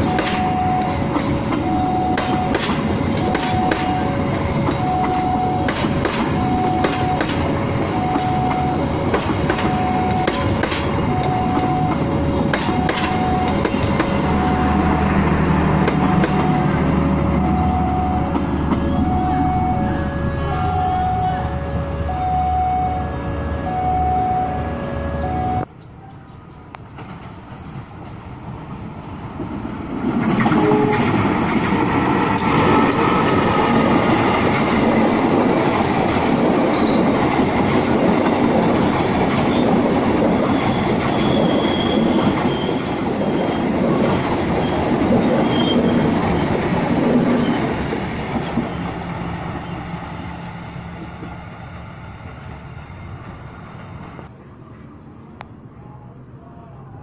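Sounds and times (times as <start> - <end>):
train wheels clattering on rails: 0.0 - 14.6, 15.2 - 16.9, 18.2 - 19.2, 26.8 - 51.6
high wheel squeal: 40.4 - 54.2.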